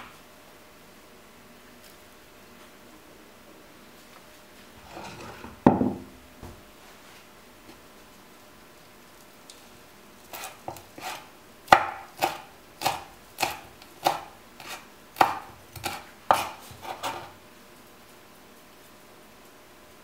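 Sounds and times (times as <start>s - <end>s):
knife chopping on wooden board: 10.3s - 17.3s.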